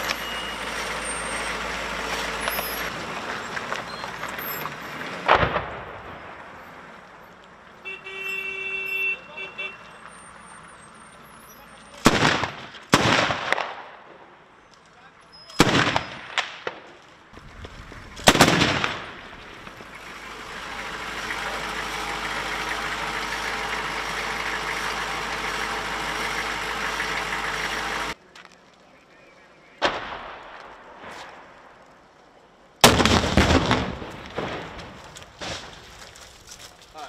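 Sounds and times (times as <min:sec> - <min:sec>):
vehicle engine running: 0:00.0 - 0:05.3, 0:17.4 - 0:28.2
gunshots: 0:12.0 - 0:14.0, 0:15.6 - 0:16.8, 0:18.2 - 0:19.2, 0:32.8 - 0:35.7
launcher blast with echoing reports: 0:12.0 - 0:14.2, 0:15.6 - 0:16.8, 0:18.2 - 0:19.7, 0:29.8 - 0:31.5, 0:32.8 - 0:35.7.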